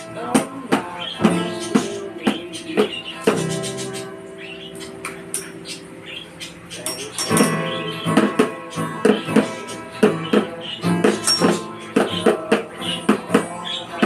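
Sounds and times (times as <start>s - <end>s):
sticks beating plastic bucket: 0.0s - 4.1s, 6.9s - 14.0s
acoustic guitar strumming: 0.0s - 14.0s.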